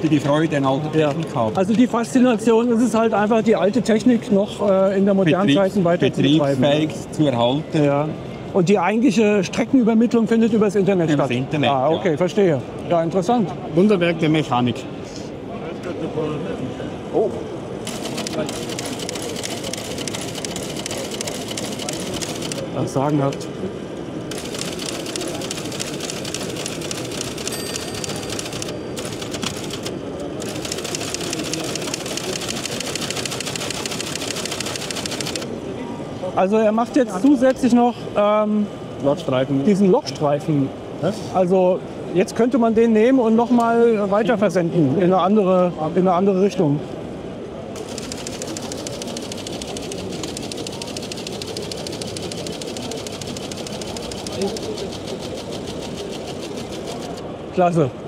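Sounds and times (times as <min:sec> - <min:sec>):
hum of busy hall: 0:00.0 - 0:58.0
teleprinter clattering: 0:24.3 - 0:35.4, 0:47.8 - 0:57.2.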